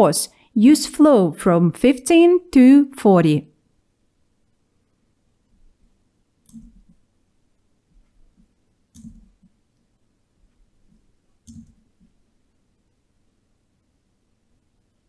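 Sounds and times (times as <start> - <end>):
computer mouse clicks: 6.4 - 7.0, 8.9 - 9.5, 11.4 - 12.1.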